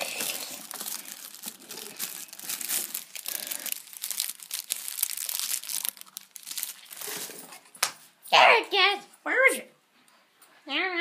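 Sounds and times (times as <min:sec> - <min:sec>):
crinkling and rustling: 0:00.0 - 0:08.2.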